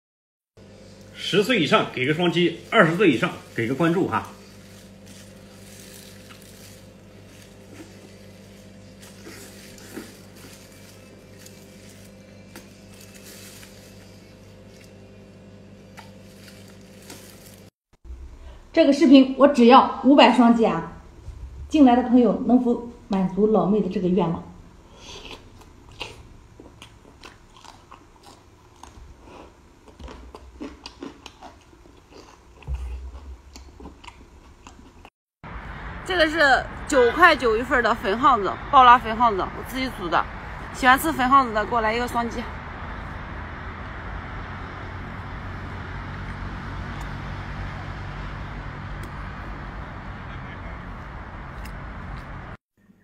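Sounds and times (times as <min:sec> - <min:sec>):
traffic rumble: 0:00.9 - 0:15.1, 0:20.2 - 0:27.6, 0:32.7 - 0:52.6
mouth chewing noises: 0:25.0 - 0:35.1.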